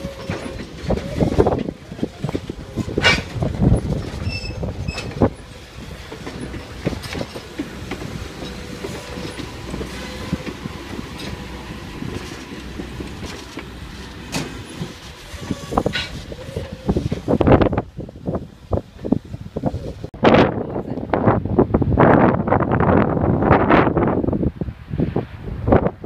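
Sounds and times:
train wheels clicking over rail joints: 0.0s - 20.1s
train rolling rumble: 0.0s - 26.0s.

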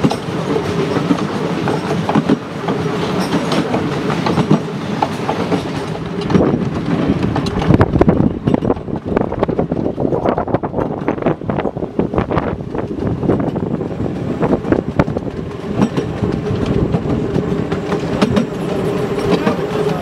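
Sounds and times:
miniature train wheels clattering: 15.0s - 20.0s.

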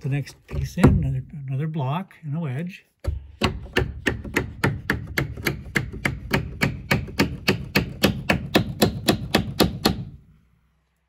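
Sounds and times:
hammer tapping a wooden wedge: 3.0s - 10.2s.

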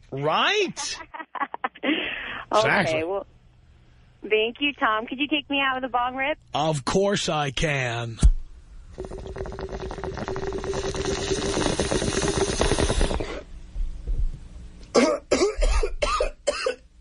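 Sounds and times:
water bubbling through a bong: 8.9s - 13.5s
person coughing: 14.9s - 16.8s.

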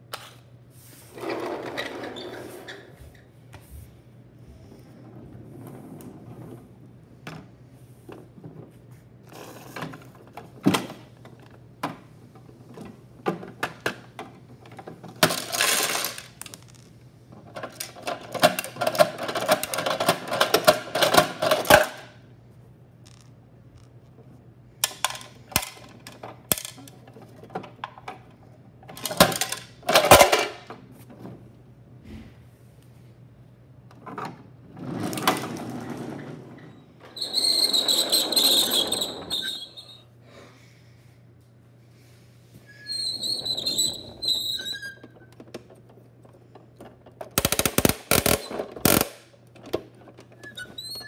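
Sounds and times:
toy trash rattling into truck: 15.1s - 16.7s, 28.9s - 30.7s
plastic toy truck clicks and knocks: 17.5s - 22.1s, 24.8s - 28.3s, 28.9s - 30.7s, 45.4s - 50.5s.

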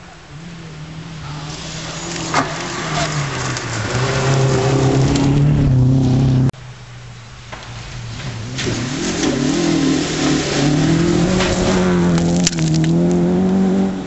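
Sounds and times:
rally car engine revving: 0.0s - 6.6s, 7.6s - 14.0s
sharp crack: 10.6s - 13.6s.

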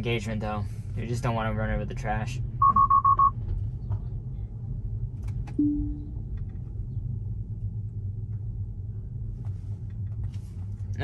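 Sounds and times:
road and tyre rumble: 0.0s - 11.0s
short low tone: 5.6s - 6.2s.

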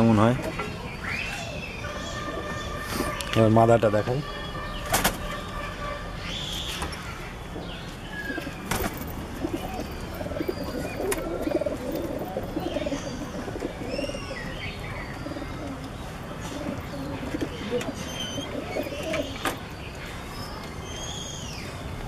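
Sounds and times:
pigeons cooing: 1.2s - 3.2s, 8.2s - 19.6s.

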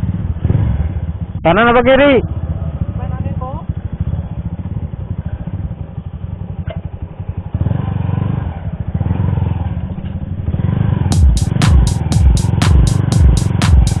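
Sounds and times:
motorcycle engine running: 0.0s - 14.0s
electronic music beat: 11.1s - 14.0s.

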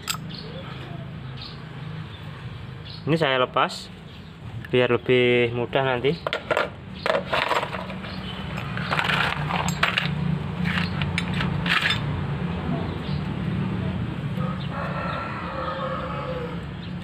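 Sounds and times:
small metal parts clinking: 0.0s - 0.3s, 6.4s - 12.1s.

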